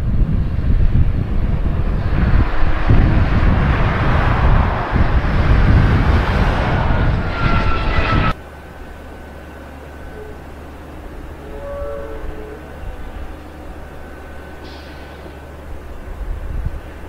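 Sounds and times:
jet engines roaring: 0:00.0 - 0:11.5
low rumble: 0:00.0 - 0:14.6
steady hum: 0:00.0 - 0:17.0
thin engine whine: 0:00.0 - 0:17.0.

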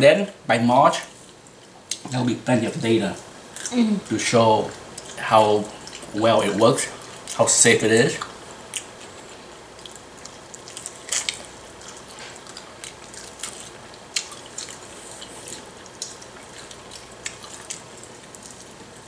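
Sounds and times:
wet chewing: 0:04.6 - 0:19.0
lip smacks: 0:08.2 - 0:18.9.

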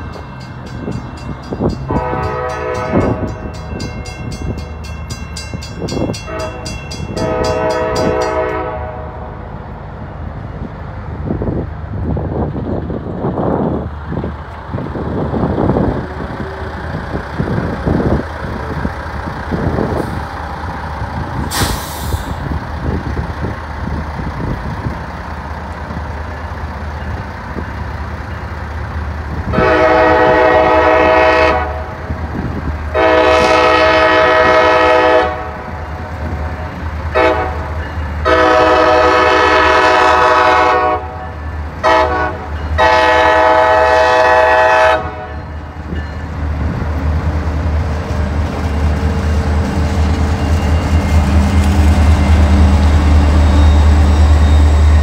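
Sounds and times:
locomotive air horn blasts: 0:01.9 - 0:03.3, 0:06.2 - 0:09.4, 0:29.5 - 0:32.0, 0:32.9 - 0:35.7, 0:37.1 - 0:45.4.

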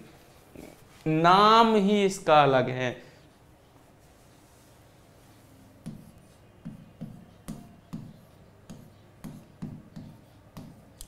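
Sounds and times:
pen tapping on whiteboard: 0:05.8 - 0:11.0.

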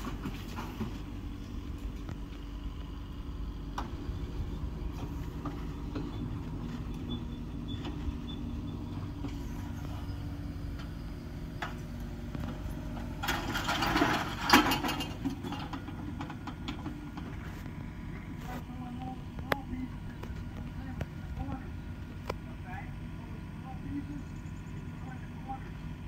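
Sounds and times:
distant diesel engine running: 0:00.0 - 0:26.0
debris clattering and crashing: 0:13.2 - 0:17.3.

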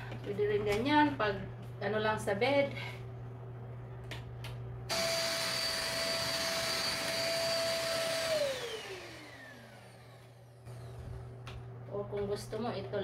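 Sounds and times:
handheld vacuum motor whine: 0:04.9 - 0:11.2.

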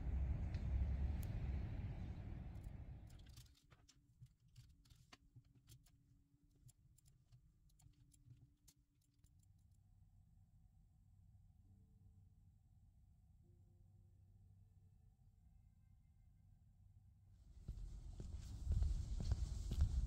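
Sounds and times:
faint small clicks and taps: 0:02.6 - 0:09.9.

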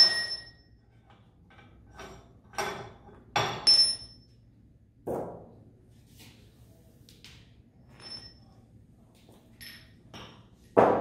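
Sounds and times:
steel tools clinking: 0:09.6 - 0:10.3.

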